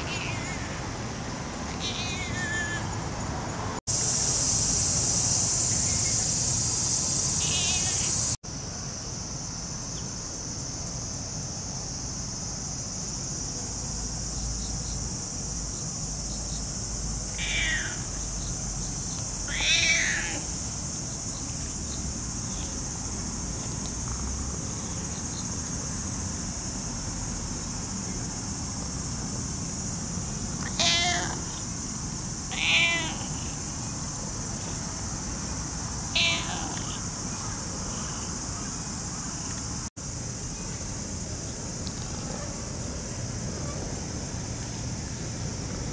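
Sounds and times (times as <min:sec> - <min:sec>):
cat meowing: 0:00.0 - 0:00.7, 0:01.8 - 0:02.9, 0:07.4 - 0:08.2, 0:17.3 - 0:18.1, 0:19.5 - 0:20.5, 0:30.6 - 0:31.6, 0:32.5 - 0:33.6, 0:36.1 - 0:37.0
high insect chorus: 0:00.0 - 0:45.9.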